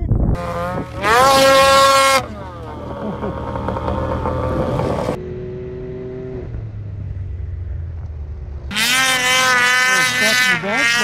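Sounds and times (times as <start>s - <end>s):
high-pitched snowmobile engine revving: 0.4s - 6.5s, 8.7s - 11.0s
snowmobile engine droning: 0.4s - 11.0s.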